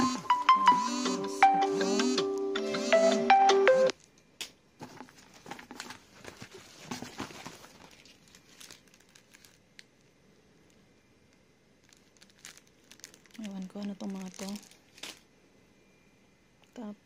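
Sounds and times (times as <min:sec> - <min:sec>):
packaging rustling and crinkling: 0:04.8 - 0:10.8, 0:11.8 - 0:15.3.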